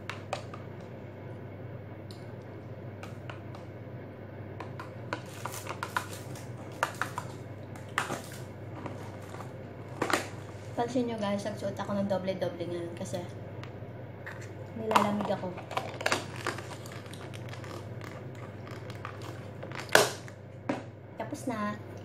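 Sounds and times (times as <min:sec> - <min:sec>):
steady low hum: 0:00.0 - 0:22.0
plastic packaging rustling: 0:05.1 - 0:10.8, 0:15.0 - 0:20.4.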